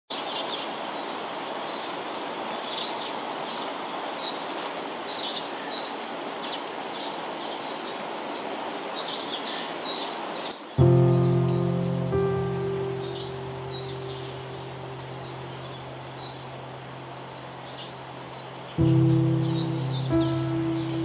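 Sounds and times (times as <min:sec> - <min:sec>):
music: 0:10.8 - 0:16.6, 0:18.8 - 0:21.0
birds chirping: 0:10.8 - 0:21.0.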